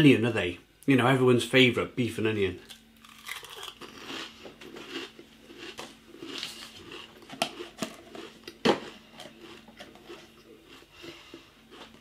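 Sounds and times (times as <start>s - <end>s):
crisps crunched and chewed: 2.6s - 10.9s.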